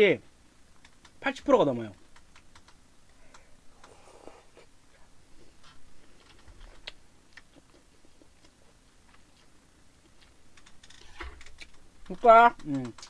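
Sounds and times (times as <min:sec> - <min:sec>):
mouth clicks and smacks: 0:02.0 - 0:04.0, 0:06.1 - 0:13.0
chewing food: 0:06.1 - 0:10.7.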